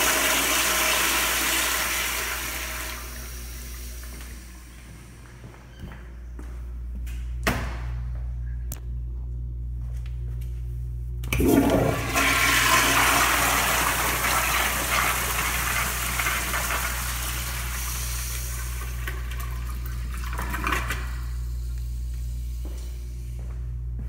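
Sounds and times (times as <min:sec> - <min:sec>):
toilet flushing: 0:00.0 - 0:04.1, 0:11.3 - 0:21.4.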